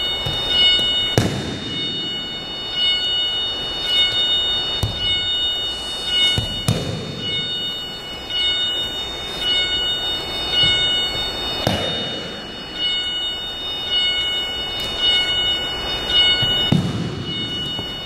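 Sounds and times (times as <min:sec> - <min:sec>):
steady high whine: 0:00.0 - 0:18.0.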